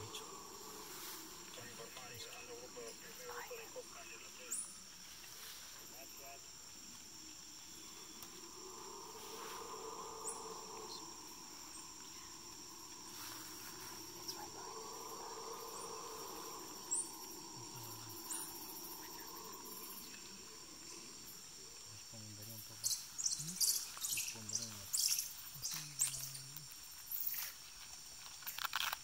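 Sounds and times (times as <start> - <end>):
low insect hum: 0.0 - 29.0
high-pitched insect buzzing: 7.6 - 21.5.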